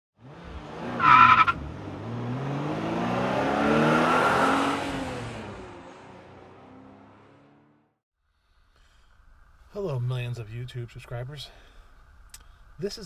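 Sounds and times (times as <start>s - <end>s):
car engine revving: 0.2s - 7.9s
car tyres squealing: 0.5s - 1.7s.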